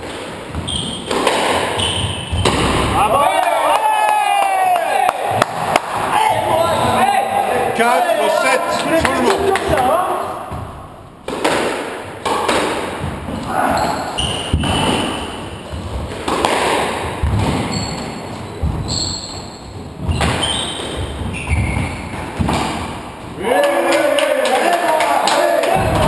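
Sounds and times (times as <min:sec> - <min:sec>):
squash ball hitting rackets and walls: 0:00.0 - 0:03.6, 0:04.6 - 0:06.6, 0:08.8 - 0:24.1
shoes squeaking on wooden floor: 0:00.5 - 0:02.8, 0:13.3 - 0:16.2, 0:17.2 - 0:22.5.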